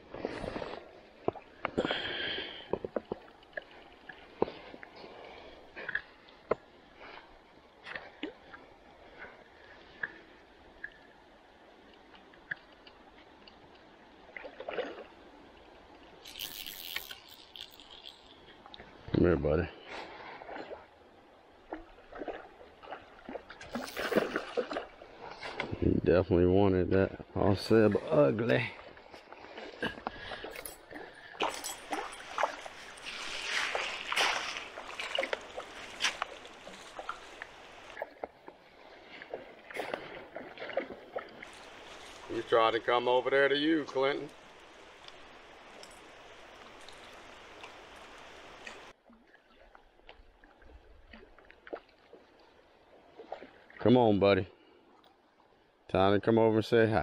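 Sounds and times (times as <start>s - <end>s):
river water trickling: 0.0s - 56.0s
small clicks: 16.2s - 18.8s
sharp splashes or knocks: 22.1s - 25.7s, 31.4s - 38.3s.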